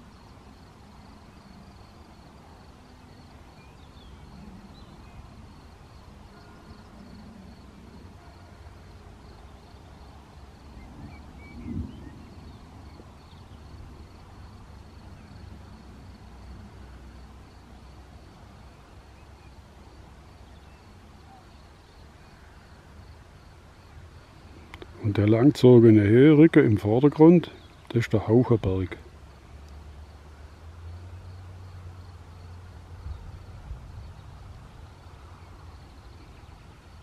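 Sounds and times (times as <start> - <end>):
bird chirps: 3.0 - 5.4, 9.4 - 13.8
wind on microphone: 10.7 - 14.1, 33.0 - 35.3.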